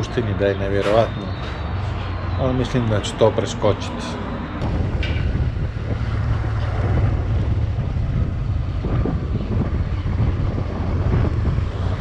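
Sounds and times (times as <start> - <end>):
wind buffeting microphone: 0.0 - 12.0
motorcycle engine rumble: 3.7 - 12.0.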